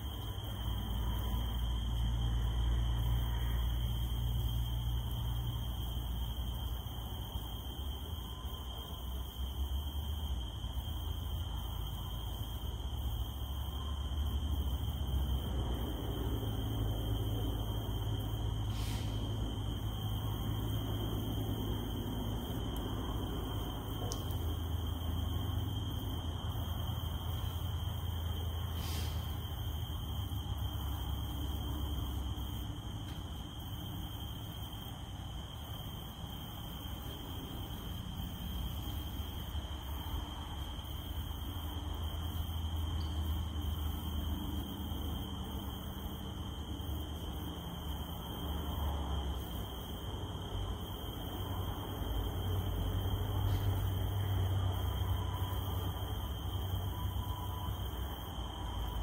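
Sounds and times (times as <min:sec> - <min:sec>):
cicada drone: 0:00.0 - 0:59.0
faint hiss: 0:13.0 - 0:50.0.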